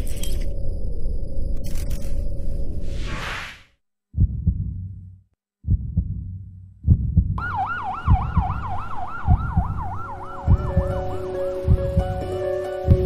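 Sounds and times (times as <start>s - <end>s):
heartbeat low thumps: 4.2s - 12.3s
ambulance siren warbling: 7.4s - 11.6s.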